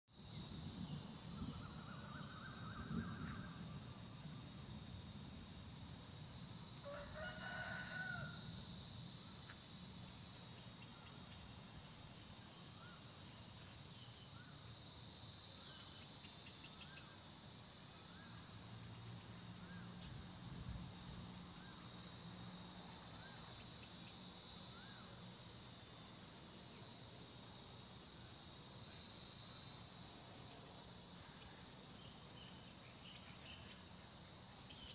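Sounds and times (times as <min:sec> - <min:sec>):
cicadas droning: 0:00.1 - 0:34.9
rooster crowing: 0:06.8 - 0:08.5.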